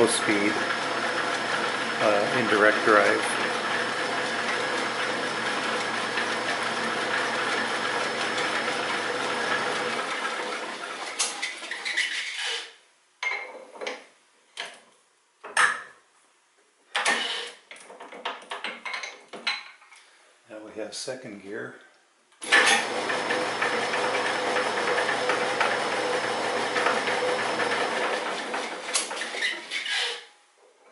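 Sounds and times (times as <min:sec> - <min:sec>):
lathe motor and belts running: 0:00.0 - 0:11.3, 0:22.4 - 0:29.9.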